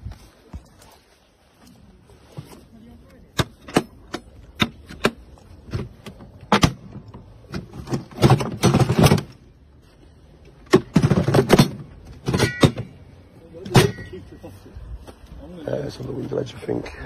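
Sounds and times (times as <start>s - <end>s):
tools clattering in toolbox: 5.7s - 9.4s, 10.6s - 14.2s.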